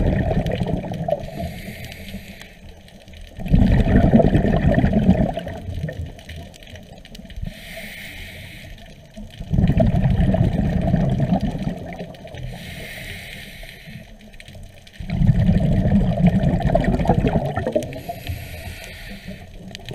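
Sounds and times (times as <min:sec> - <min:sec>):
bubbling exhaust: 0:00.0 - 0:01.6, 0:03.4 - 0:06.1, 0:09.4 - 0:12.6, 0:15.0 - 0:19.9
diver breathing through regulator: 0:01.2 - 0:02.7, 0:07.4 - 0:09.0, 0:12.4 - 0:14.2, 0:17.9 - 0:19.8.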